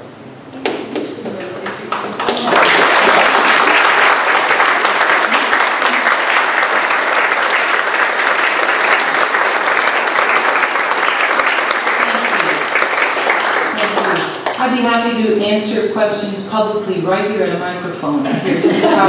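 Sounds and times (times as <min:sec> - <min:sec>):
audience applauding: 0:01.0 - 0:14.6.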